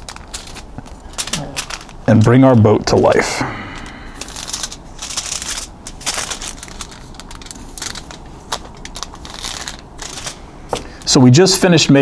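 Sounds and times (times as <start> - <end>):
aluminum foil crinkling: 0.0 - 12.0.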